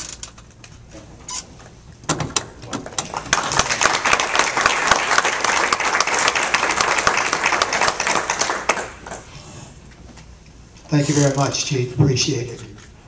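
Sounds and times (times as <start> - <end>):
audience applauding: 2.8 - 9.3.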